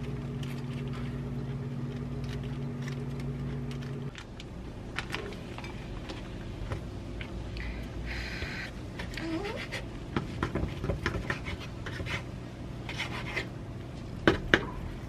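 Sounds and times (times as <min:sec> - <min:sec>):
kitchen appliance humming: 0:00.0 - 0:10.5.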